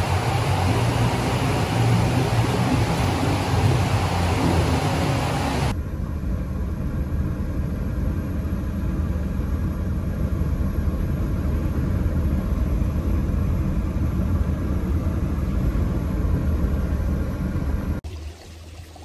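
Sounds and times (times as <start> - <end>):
car driving on flooded road: 0.0 - 5.7.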